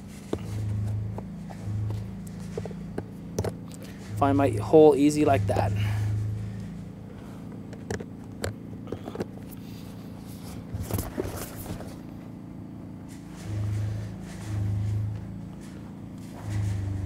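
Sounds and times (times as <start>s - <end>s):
low engine drone: 0.0s - 17.0s.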